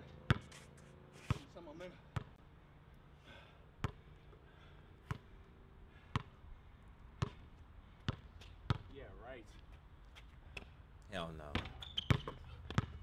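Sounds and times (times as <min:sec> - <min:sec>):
basketball bouncing on court: 0:00.1 - 0:00.5, 0:02.1 - 0:02.4, 0:03.8 - 0:04.1, 0:05.0 - 0:05.3, 0:06.1 - 0:06.4, 0:07.1 - 0:08.9, 0:11.4 - 0:13.0.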